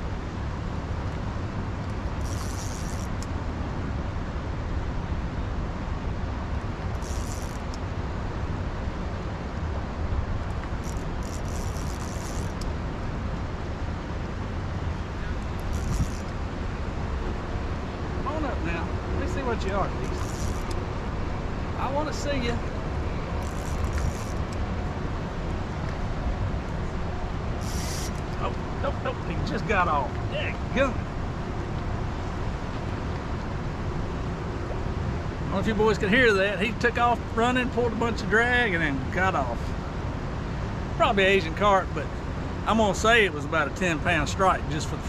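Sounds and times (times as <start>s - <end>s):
short high-pitched buzzes: 2.2s - 3.2s, 7.0s - 7.8s, 10.8s - 12.6s, 15.6s - 16.4s, 20.0s - 20.7s, 27.6s - 28.3s
wind on microphone: 15.0s - 18.2s.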